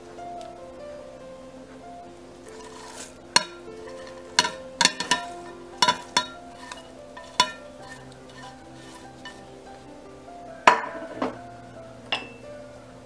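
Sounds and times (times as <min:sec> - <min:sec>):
soft background music: 0:00.0 - 0:13.0
plate clinking against glass bowl: 0:02.5 - 0:09.6.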